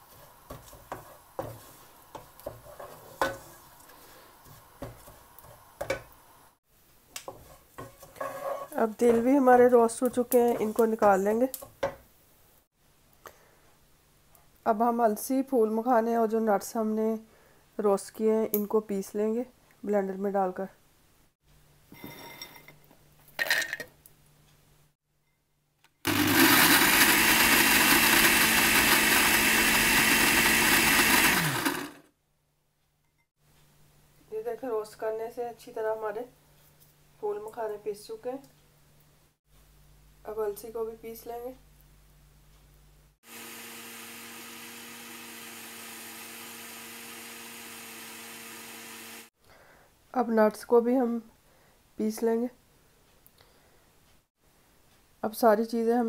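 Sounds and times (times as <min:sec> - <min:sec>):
blender motor grinding: 0:26.1 - 0:32.0, 0:43.2 - 0:49.3.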